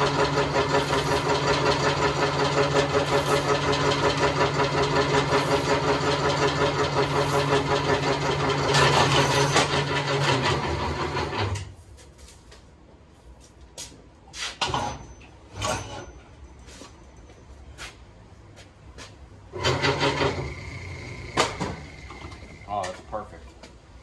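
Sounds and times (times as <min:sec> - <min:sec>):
wire stripper machine running: 0:00.0 - 0:11.7, 0:19.5 - 0:22.9
short scraping sounds: 0:14.3 - 0:14.8.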